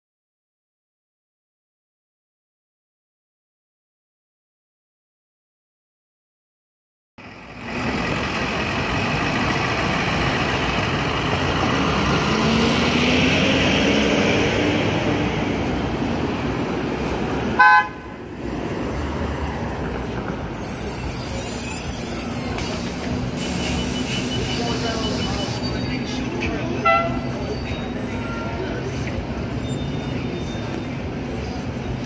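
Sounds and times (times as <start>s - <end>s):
city street traffic: 7.2s - 32.0s
vehicle horn toot: 17.6s - 18.0s, 26.8s - 27.3s.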